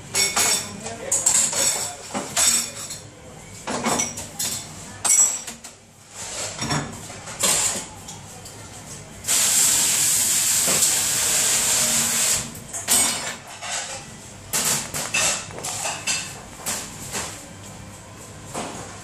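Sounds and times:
spray valve hissing water: 0:09.3 - 0:12.4
plates clattering and knocking: 0:12.8 - 0:17.3.

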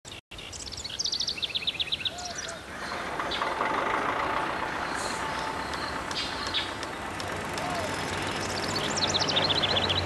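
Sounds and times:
birds chirping: 0:00.1 - 0:10.0
street traffic noise: 0:01.2 - 0:10.0.

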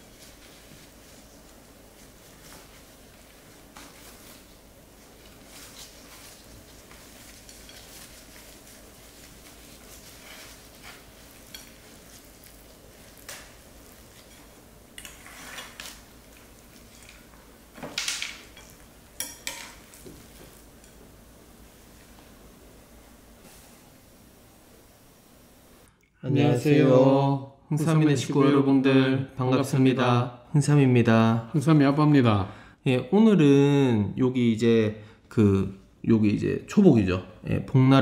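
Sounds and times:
dishes and utensils clinking: 0:16.7 - 0:21.0.

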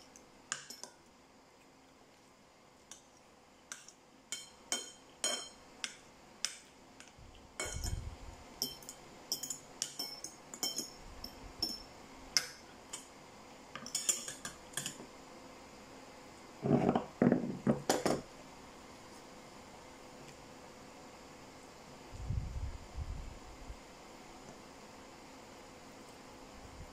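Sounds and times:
cutlery clinking on ceramic bowls: 0:00.5 - 0:01.0, 0:03.7 - 0:06.7, 0:07.6 - 0:08.0, 0:08.6 - 0:12.6, 0:13.8 - 0:15.0
bowls scraping across table: 0:16.6 - 0:17.6.

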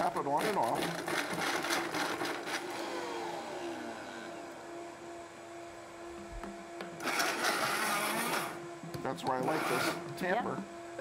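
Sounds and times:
blender motor pulsing: 0:00.4 - 0:05.0, 0:07.0 - 0:08.6, 0:09.4 - 0:10.1.

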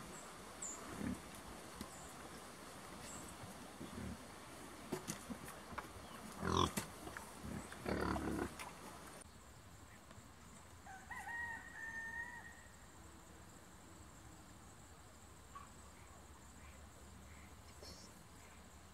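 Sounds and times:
rooster crowing: 0:10.8 - 0:12.8.

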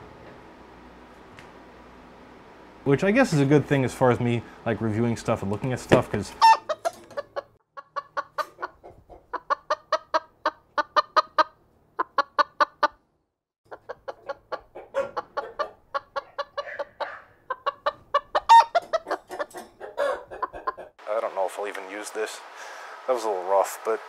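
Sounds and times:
chicken clucking: 0:06.4 - 0:13.0, 0:13.7 - 0:21.0.

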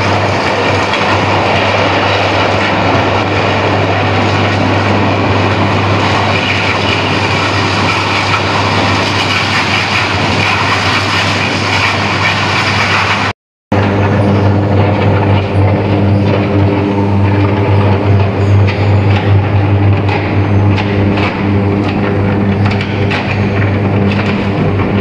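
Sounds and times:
furnace roaring: 0:00.0 - 0:25.0
low hum: 0:13.2 - 0:25.0.

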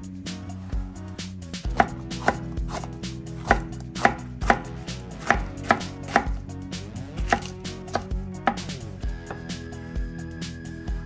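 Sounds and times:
knife knocking on wooden cutting board: 0:01.8 - 0:06.4, 0:07.2 - 0:09.5.

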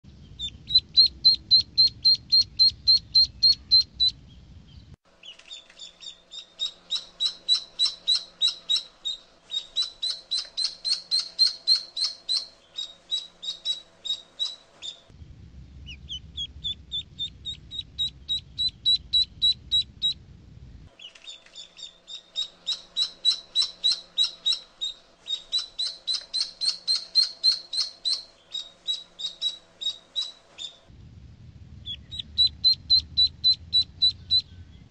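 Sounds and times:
low background rumble: 0:00.0 - 0:05.2, 0:06.6 - 0:21.0, 0:22.2 - 0:34.9
duckling peeping: 0:00.2 - 0:15.1, 0:15.8 - 0:20.2, 0:21.0 - 0:30.8, 0:31.8 - 0:34.9.

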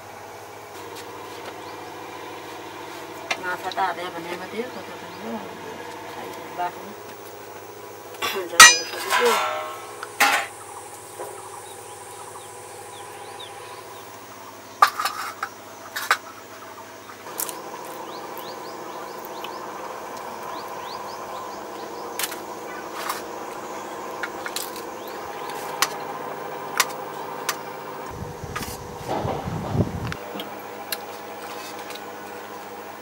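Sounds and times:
steel plates and bowls clinking: 0:08.6 - 0:10.5.

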